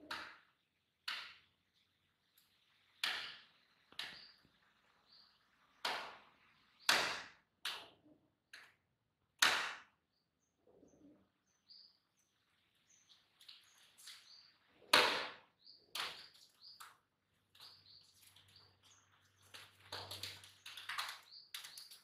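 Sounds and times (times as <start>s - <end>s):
pigeon wing claps and swishes: 16.0s - 22.0s.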